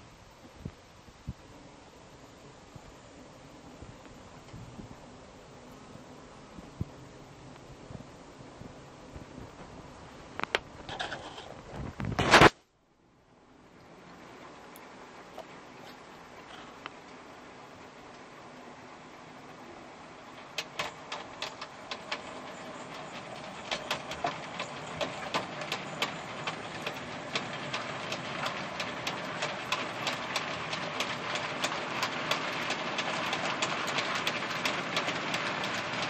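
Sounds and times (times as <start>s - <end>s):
wheels clicking over rail joints: 10.4s - 12.5s, 20.2s - 36.0s
model train wheels rumbling on rails: 19.5s - 36.0s.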